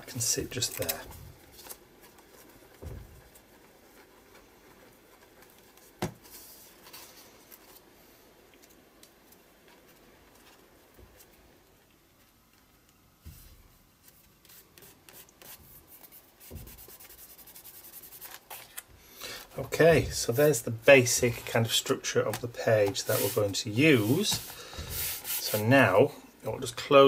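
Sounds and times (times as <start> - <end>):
paper scratching and rustling: 0.2 - 7.9, 14.0 - 18.8, 22.3 - 25.8
soft thumps on paper: 2.7 - 3.5, 16.4 - 17.0.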